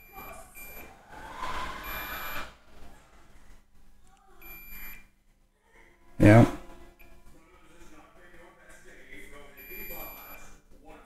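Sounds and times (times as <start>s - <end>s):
multimeter beeps: 0.0s - 0.9s, 1.8s - 2.5s, 4.4s - 5.1s, 9.6s - 10.4s.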